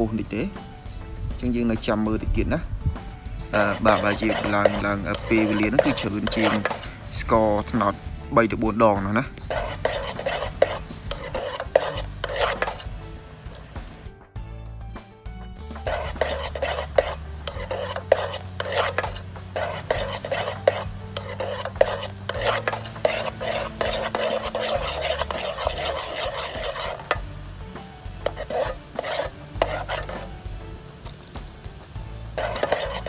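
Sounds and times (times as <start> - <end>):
spoon scraping a pot: 3.5 - 7.0, 9.5 - 12.9, 15.8 - 27.2, 28.2 - 30.3, 32.4 - 33.0.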